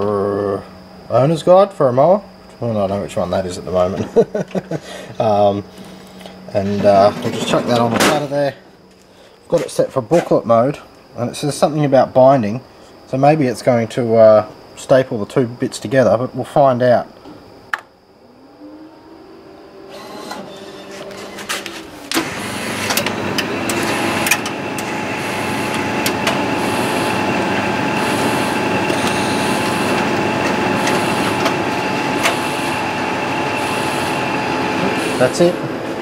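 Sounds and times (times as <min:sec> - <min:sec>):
photocopier whirring and humming: 0:00.0 - 0:10.8, 0:19.1 - 0:36.0
photocopier whine starting up: 0:00.0 - 0:36.0
machine clunk: 0:06.8 - 0:08.3, 0:19.9 - 0:25.0.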